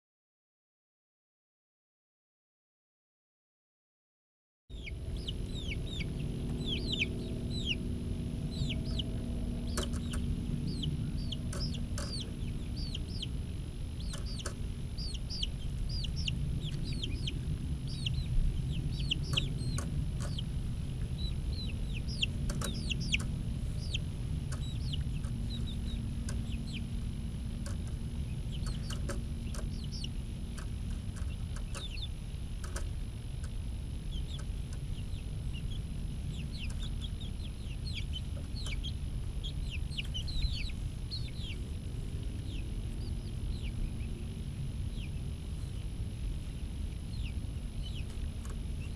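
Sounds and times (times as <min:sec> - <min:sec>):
chicks peeping: 0:04.7 - 0:48.9
low rumble: 0:04.7 - 0:48.9
sharp clicks: 0:09.7 - 0:10.2, 0:22.1 - 0:26.8, 0:30.6 - 0:33.6.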